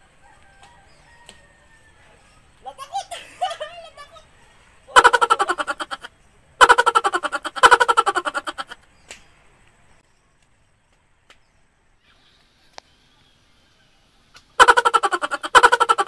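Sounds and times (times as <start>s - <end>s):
pulsed laughter: 2.7s - 8.8s, 14.6s - 16.0s.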